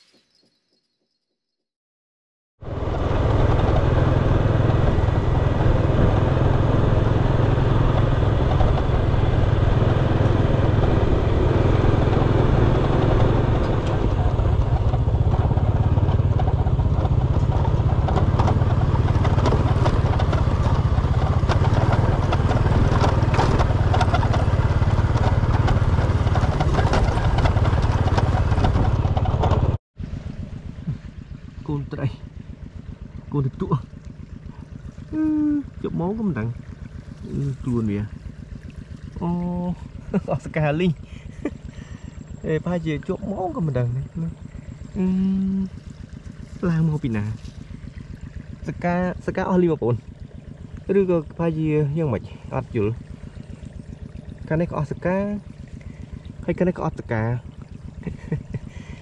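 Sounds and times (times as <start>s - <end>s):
engine running with low rumble: 2.6s - 59.0s
light clatter: 13.6s - 29.8s.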